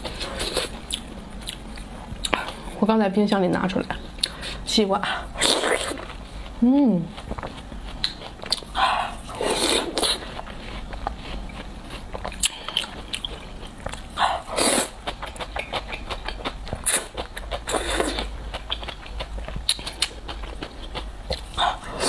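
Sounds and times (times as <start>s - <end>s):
wet chewing and mouth clicks: 0.2s - 2.8s, 5.4s - 22.0s.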